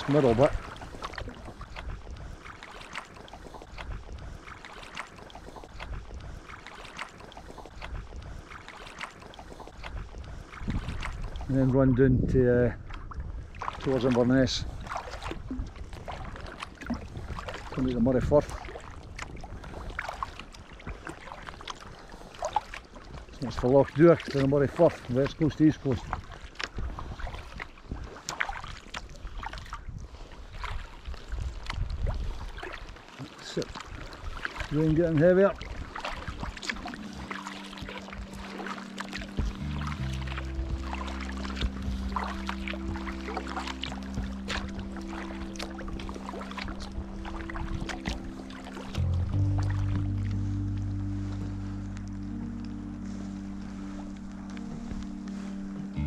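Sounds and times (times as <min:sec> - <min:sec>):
wind rumble on microphone: 0:00.0 - 0:02.4, 0:03.4 - 0:04.5, 0:07.5 - 0:08.6, 0:09.4 - 0:24.0, 0:24.6 - 0:33.0, 0:33.8 - 0:56.0
paddle splashing in water: 0:00.0 - 0:12.0, 0:12.6 - 0:56.0
wind noise on microphone: 0:09.8 - 0:13.7, 0:14.6 - 0:21.1, 0:25.9 - 0:28.2, 0:29.2 - 0:32.7
water drips: 0:32.6 - 0:52.8.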